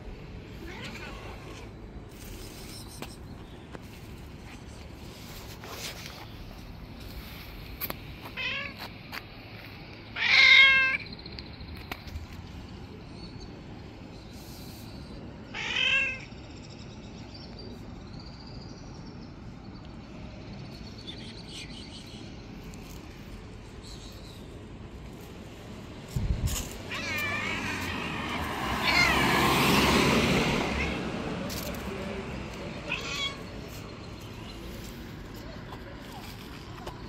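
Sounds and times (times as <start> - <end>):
cat meowing: 0.6 - 1.7, 8.4 - 8.8, 10.2 - 11.0, 15.5 - 16.3, 26.9 - 29.5, 32.8 - 33.5.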